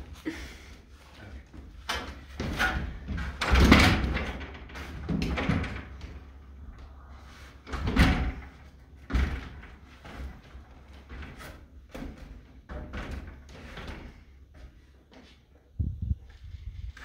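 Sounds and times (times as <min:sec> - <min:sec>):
irregular knocks and thuds: 0:01.5 - 0:07.0, 0:07.6 - 0:15.3
low rumble: 0:06.0 - 0:09.0.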